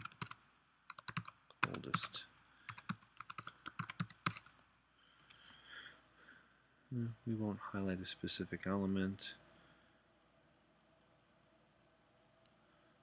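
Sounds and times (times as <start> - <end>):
computer keyboard typing: 0.0 - 4.5.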